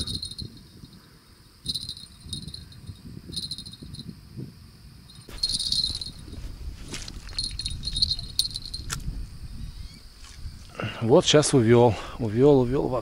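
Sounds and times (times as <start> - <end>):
bite-alarm bells jingling: 0.0 - 1.0, 1.6 - 4.1, 5.1 - 8.9.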